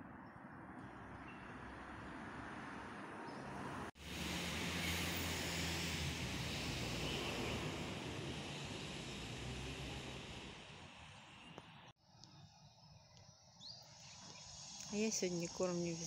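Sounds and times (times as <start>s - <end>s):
outdoor background noise: 0.0s - 16.0s
engine droning: 1.8s - 11.9s.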